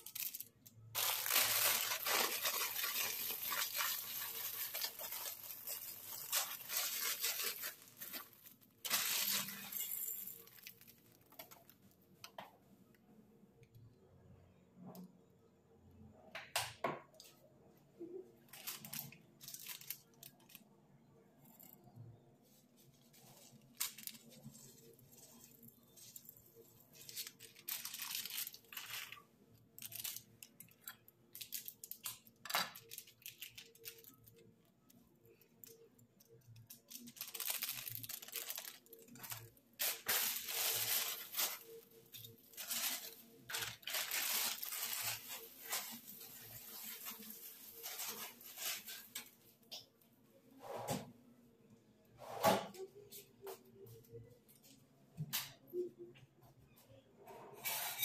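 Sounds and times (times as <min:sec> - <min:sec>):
plastic wrapper crinkling and tearing: 0:00.0 - 0:12.0, 0:18.5 - 0:20.7, 0:22.5 - 0:49.6.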